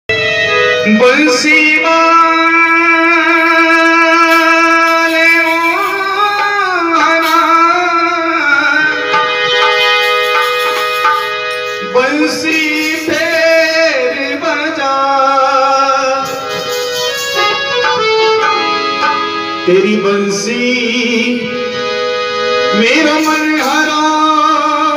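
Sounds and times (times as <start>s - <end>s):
sustained instrumental melody: 0.1s - 24.9s
hand drum playing: 3.2s - 7.7s, 9.1s - 14.0s, 16.2s - 19.4s.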